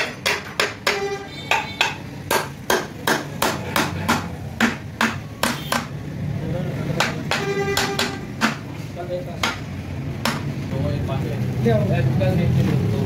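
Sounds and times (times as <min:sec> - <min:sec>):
hammer tapping on metal: 0:00.0 - 0:06.0, 0:07.0 - 0:08.7, 0:09.4 - 0:10.5.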